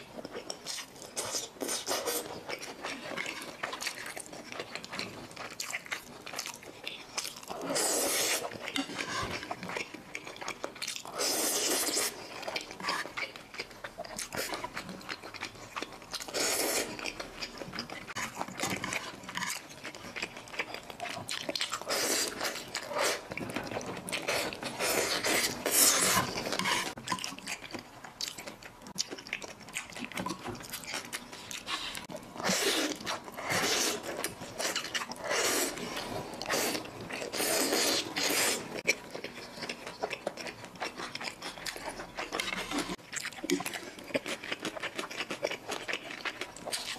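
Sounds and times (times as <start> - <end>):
wet chewing: 0.0 - 46.9
noodles being slurped: 31.5 - 38.8.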